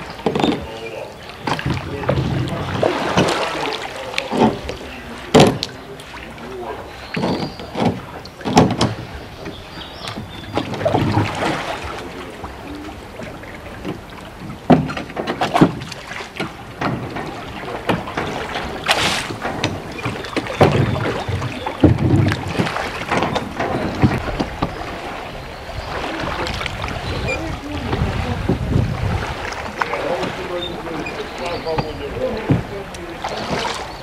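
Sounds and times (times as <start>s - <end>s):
wind on microphone: 0.0s - 6.0s, 17.0s - 34.0s
oars knocking in oarlocks: 0.0s - 6.4s, 7.0s - 12.0s, 13.1s - 25.0s, 25.9s - 34.0s
oar blades splashing: 0.0s - 34.0s
water washing: 0.0s - 34.0s.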